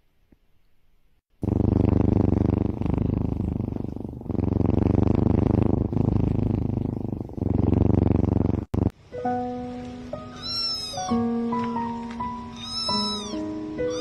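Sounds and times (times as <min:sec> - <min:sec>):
kitten purring: 0:01.4 - 0:09.0, 0:11.6 - 0:14.0.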